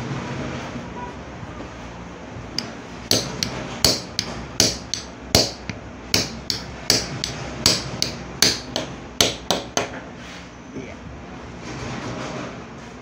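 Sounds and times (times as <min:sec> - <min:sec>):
hammer striking steel punch: 0:02.6 - 0:10.0.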